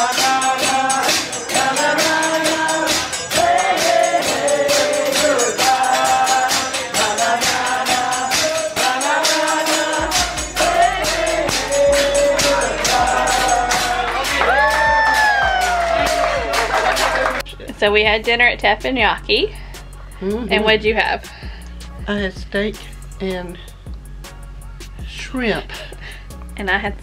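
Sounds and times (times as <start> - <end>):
person singing: 0.0 - 17.4
fast percussion beat: 0.0 - 23.7, 24.8 - 27.0.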